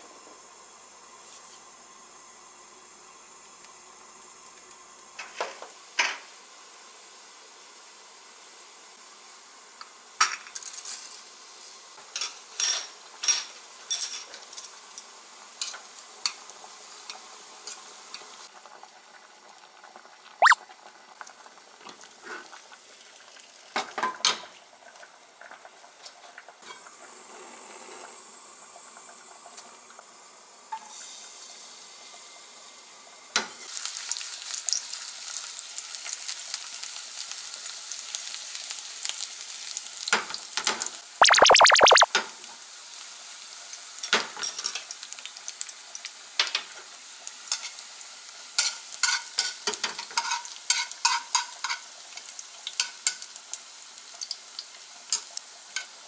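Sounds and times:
water boiling in a pot: 0:00.0 - 0:56.0
garlic sizzling in oil: 0:00.4 - 0:18.5, 0:33.5 - 0:41.0, 0:42.6 - 0:56.0
utensils clinking against pots: 0:12.2 - 0:14.8.

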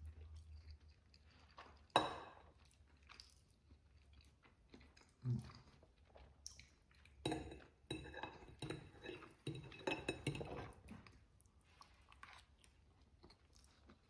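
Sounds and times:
person chewing: 0:00.0 - 0:07.7, 0:10.5 - 0:14.0
fork scraping ceramic plate: 0:08.0 - 0:10.8.

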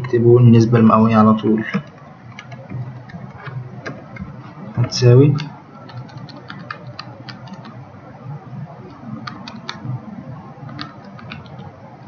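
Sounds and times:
faint room noise: 0:00.0 - 0:12.0
keyboard keys tapping: 0:01.6 - 0:07.9, 0:08.6 - 0:12.0.

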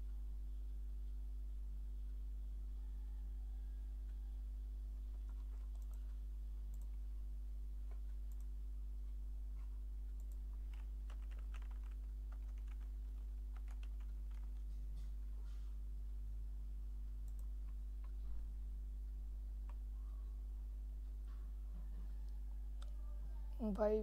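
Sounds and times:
low electrical hum: 0:00.0 - 0:24.0
computer keyboard typing: 0:05.2 - 0:07.0, 0:09.6 - 0:14.7, 0:17.2 - 0:18.2.

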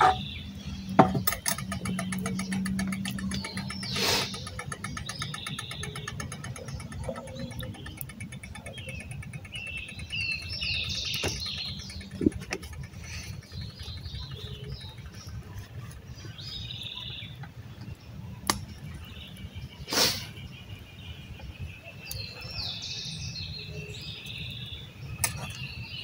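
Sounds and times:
birds chirping: 0:00.0 - 0:26.0
twig fire crackling: 0:01.6 - 0:20.2.

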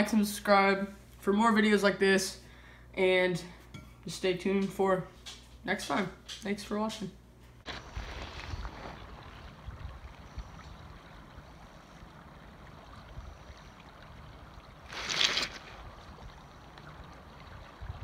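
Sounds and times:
river water running: 0:07.7 - 0:18.0.

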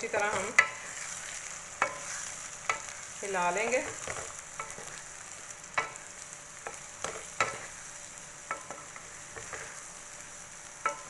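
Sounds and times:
potatoes and eggs sizzling in oil: 0:00.0 - 0:11.0
wooden spatula stirring: 0:00.1 - 0:06.0, 0:08.4 - 0:10.0.

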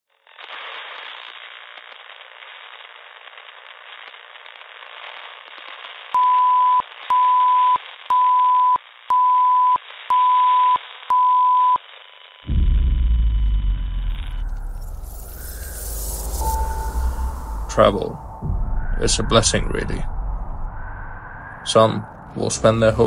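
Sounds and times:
crackly static: 0:00.1 - 0:08.1, 0:08.7 - 0:23.0
high beeps: 0:13.2 - 0:23.0.

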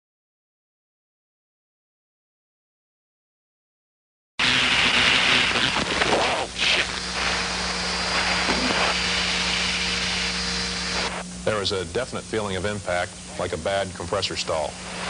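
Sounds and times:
steady hum: 0:04.4 - 0:15.0.

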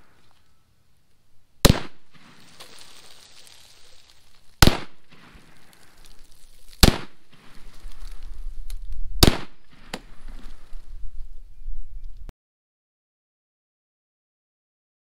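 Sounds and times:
rifle shots: 0:01.6 - 0:02.5, 0:04.6 - 0:05.6, 0:06.8 - 0:07.5, 0:09.2 - 0:10.2.

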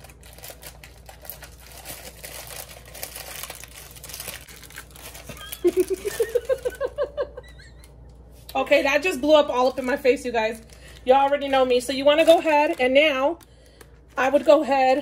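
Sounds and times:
plastic bag crinkling and tearing: 0:00.0 - 0:07.0, 0:09.5 - 0:15.0
woman laughing: 0:05.3 - 0:08.2.

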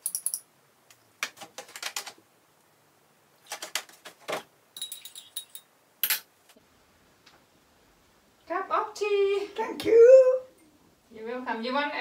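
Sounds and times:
teaspoon clinking ceramic mugs: 0:04.8 - 0:06.2.

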